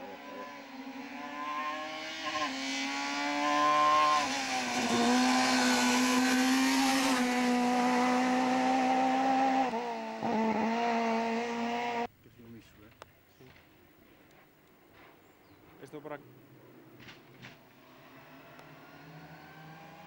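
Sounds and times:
rally car engine revving: 0.0 - 12.1, 17.1 - 20.0.

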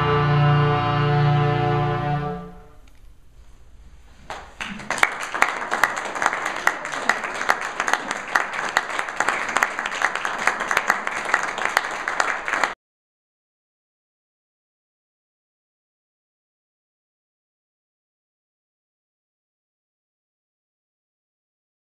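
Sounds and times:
audience applauding: 4.3 - 12.8.

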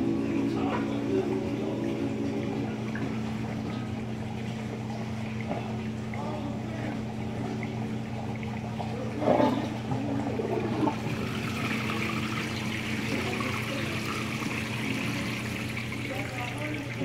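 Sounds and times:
steady hum: 0.0 - 17.0
water gushing and splashing: 6.7 - 17.0.

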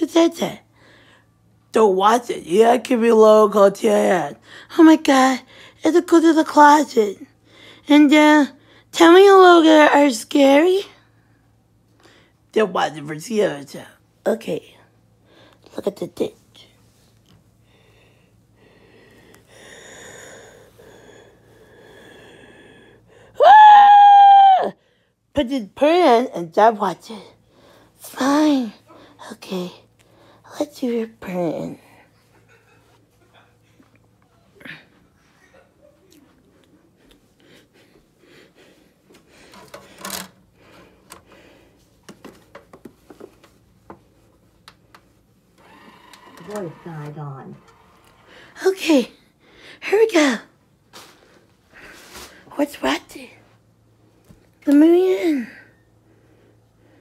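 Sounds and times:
faint breathing: 0.7 - 1.5, 17.6 - 23.4, 27.4 - 28.0, 30.0 - 30.5, 48.1 - 48.6.

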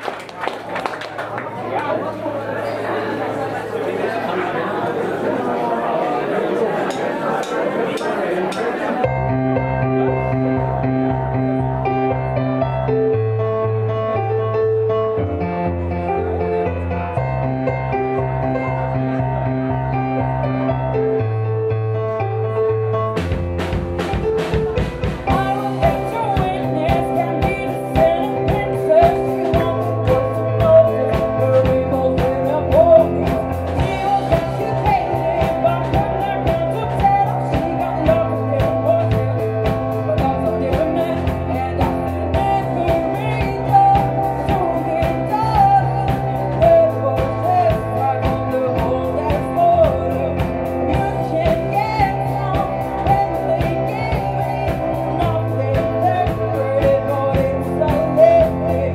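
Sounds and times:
electric keyboard: 1.4 - 58.9
drum kit beat: 23.0 - 58.9
woman singing into microphone: 25.2 - 58.9.

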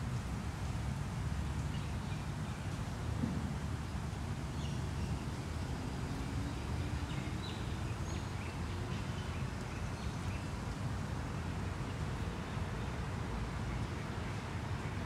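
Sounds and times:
distant city traffic rumble: 0.0 - 15.0.

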